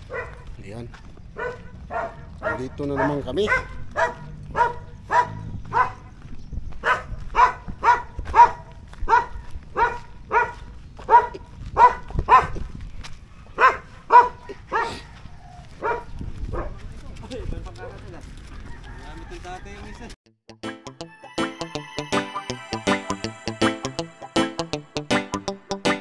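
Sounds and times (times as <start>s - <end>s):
dog barking: 0.0s - 0.5s, 1.3s - 6.2s, 6.8s - 12.7s, 13.3s - 16.9s, 17.8s - 18.1s.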